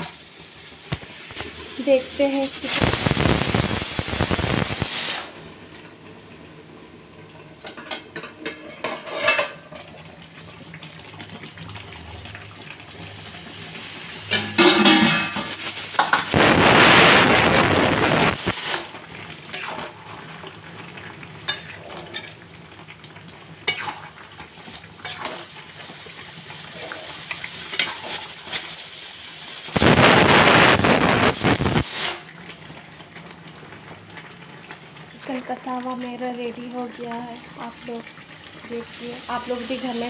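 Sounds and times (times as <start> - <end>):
chicken sizzling in a pan: 0.0 - 6.6, 7.3 - 40.0
metal spatula scraping a pan: 8.5 - 9.7, 14.3 - 16.3.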